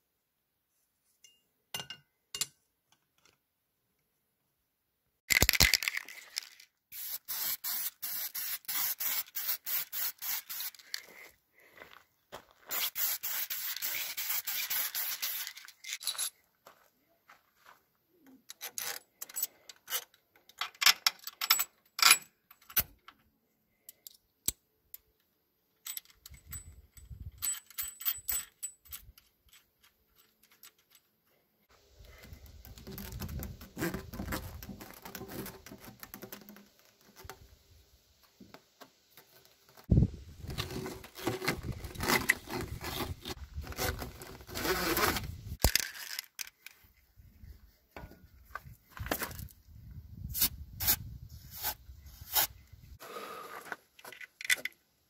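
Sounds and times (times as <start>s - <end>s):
spray can hissing: 6.9s - 10.8s, 12.7s - 15.6s
rubber hoses rustling and scraping: 12.6s - 16.5s, 30.1s - 49.6s.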